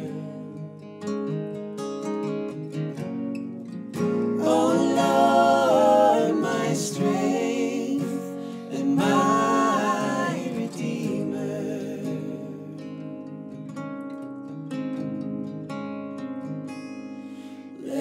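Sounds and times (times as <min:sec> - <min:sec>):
person singing: 0:00.0 - 0:00.8, 0:04.2 - 0:12.8, 0:17.8 - 0:18.0
acoustic guitar: 0:00.0 - 0:18.0.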